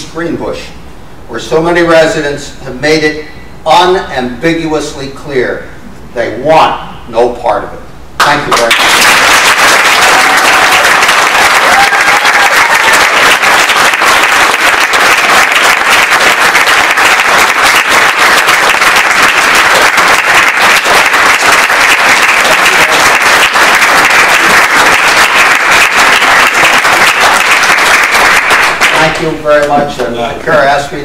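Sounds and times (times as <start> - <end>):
audience applauding: 8.5 - 29.4.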